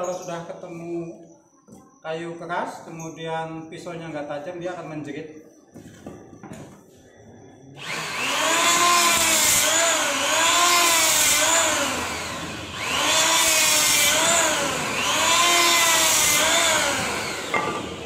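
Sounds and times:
electric planer shaving wood: 7.8s - 18.0s.

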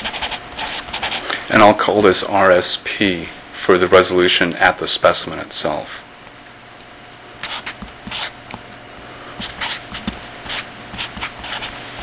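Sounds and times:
pen scratching on paper: 0.0s - 1.2s, 7.4s - 8.4s, 9.4s - 12.0s.

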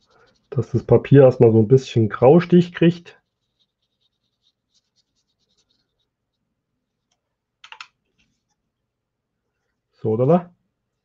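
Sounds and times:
brush scratching on paper: 0.0s - 7.1s
sharp clicks: 7.6s - 8.0s.

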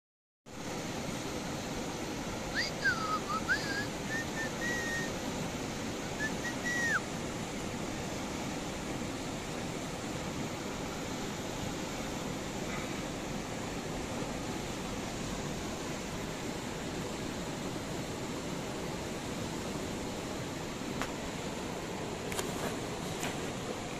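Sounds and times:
river flowing over stones: 0.5s - 23.9s
person whistling: 2.5s - 5.1s, 6.2s - 7.0s.

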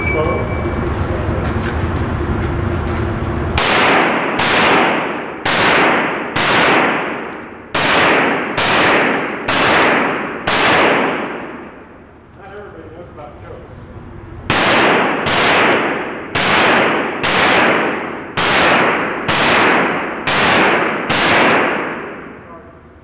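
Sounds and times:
handgun shots echoing: 3.6s - 11.8s, 14.5s - 22.7s.

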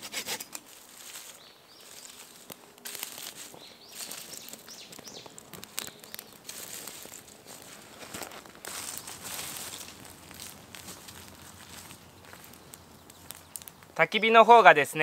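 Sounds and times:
small clicks and crackles: 0.4s - 14.0s.

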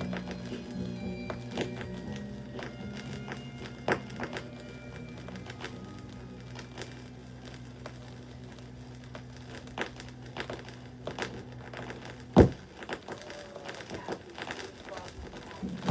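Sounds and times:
turntable low hum: 0.0s - 14.4s
vinyl surface crackle and clicks: 0.0s - 15.9s
loud thump: 12.4s - 12.6s.

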